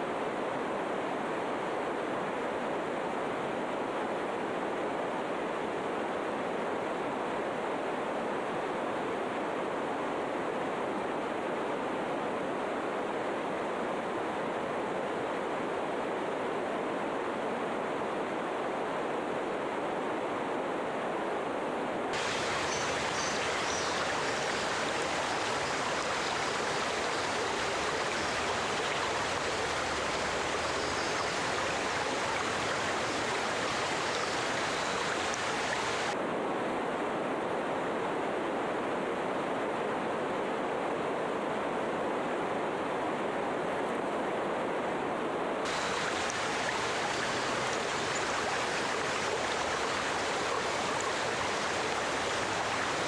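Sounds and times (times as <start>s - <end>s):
water rushing: 22.1s - 36.2s, 45.7s - 53.0s.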